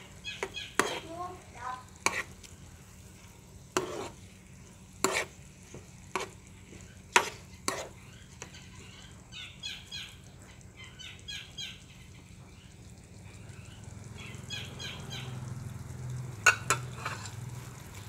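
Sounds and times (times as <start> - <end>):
vegetables stir-frying: 0.0 - 18.0
metal spatula scraping a pan: 0.4 - 1.2, 1.9 - 2.5, 3.7 - 4.4, 5.0 - 9.0, 16.4 - 17.5
bird chirping: 8.0 - 15.4.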